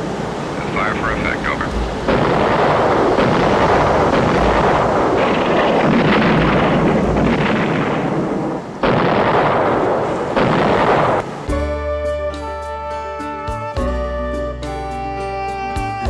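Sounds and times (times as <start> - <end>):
naval gunfire barrage: 0.6 - 11.4.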